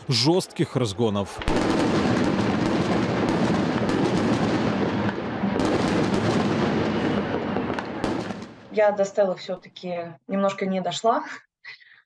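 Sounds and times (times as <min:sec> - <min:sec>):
continuous noisy din: 0:01.4 - 0:08.9.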